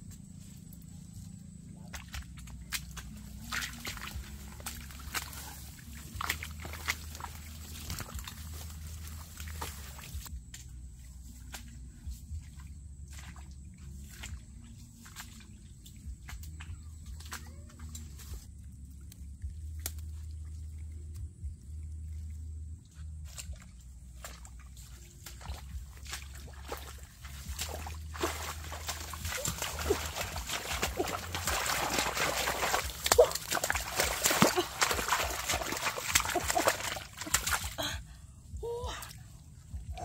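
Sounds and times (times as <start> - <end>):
low steady hum: 0.0 - 40.0
hands splashing in muddy water: 1.9 - 10.3, 13.1 - 21.3, 23.1 - 38.0.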